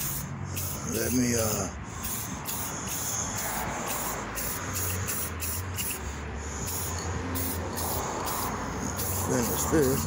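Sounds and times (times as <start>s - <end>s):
spray paint can hissing: 0.0s - 10.0s.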